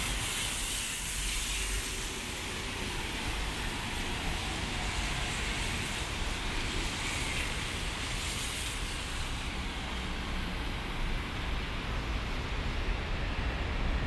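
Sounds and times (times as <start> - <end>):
traffic tyre hiss on wet road: 0.0 - 14.0.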